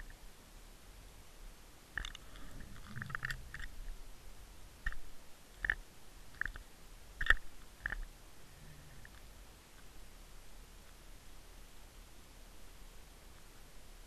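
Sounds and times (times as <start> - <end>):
sharp clicks and light knocks: 2.0 - 3.8, 4.8 - 8.1.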